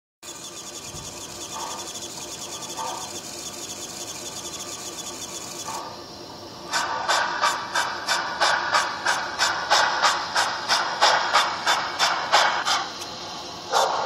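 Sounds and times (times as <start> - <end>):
fast fine ticking: 0.2 - 5.8
steam locomotive chuffs: 0.2 - 14.0
steam puffs: 6.7 - 12.9.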